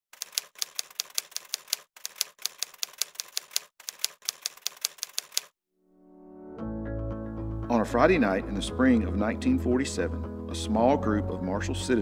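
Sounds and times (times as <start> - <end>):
typewriter keys clacking: 0.1 - 5.5.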